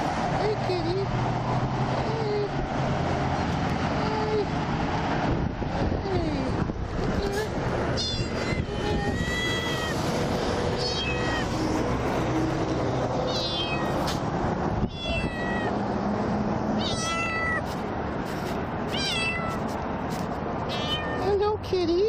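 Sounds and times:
highway traffic rushing: 0.0 - 22.0
kitten meowing: 8.0 - 10.1, 10.8 - 11.6, 13.3 - 14.2, 14.9 - 15.8, 16.8 - 17.7, 18.9 - 19.6, 20.7 - 21.3.

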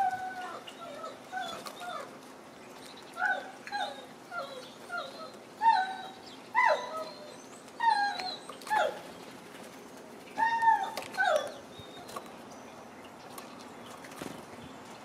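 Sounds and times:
dog whining: 0.0 - 2.2, 3.2 - 9.1, 10.3 - 12.3.

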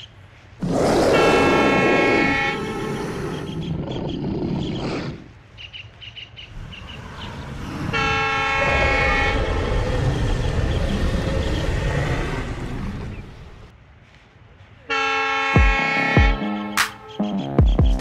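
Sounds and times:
locomotive horn blast: 1.1 - 3.6, 7.8 - 9.6, 14.9 - 17.2
train rumble: 6.5 - 16.4.

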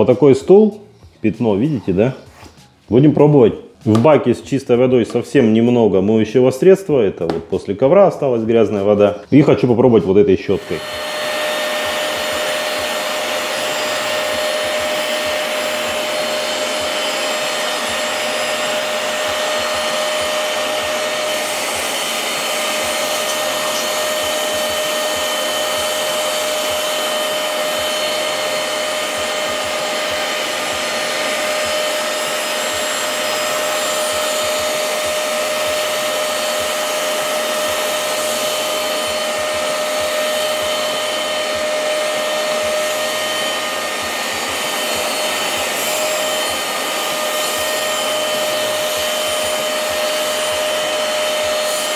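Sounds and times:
wet vacuum motor whine: 10.5 - 51.9.

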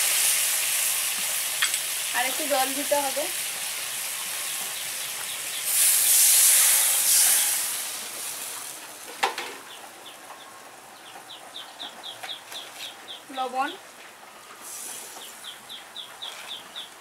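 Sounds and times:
water hissing in hot oil: 0.0 - 9.8, 14.6 - 15.6
small bird chirping: 3.8 - 5.8, 9.6 - 13.7, 14.9 - 17.0.

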